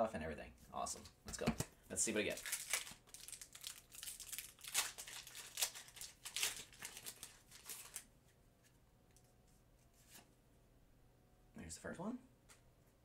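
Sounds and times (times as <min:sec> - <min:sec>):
foil wrapper crinkling and tearing: 0:02.2 - 0:08.1.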